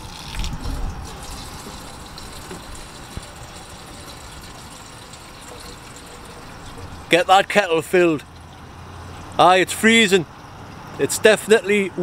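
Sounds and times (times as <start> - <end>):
water filling metal kettle: 0.0 - 7.2.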